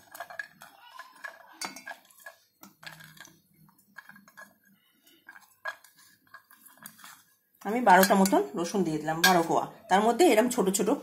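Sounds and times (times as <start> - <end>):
garlic clinking into steel jar: 0.0 - 3.3.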